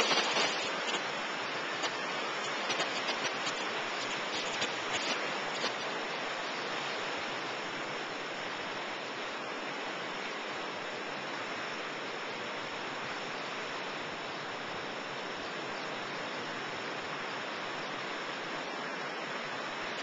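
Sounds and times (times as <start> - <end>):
ocean surf breaking: 0.0 - 7.5.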